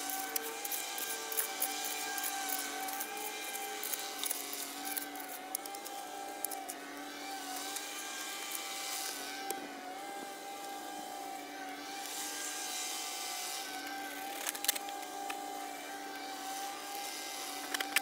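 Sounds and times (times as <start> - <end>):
shovel digging into soil: 0.0 - 6.8.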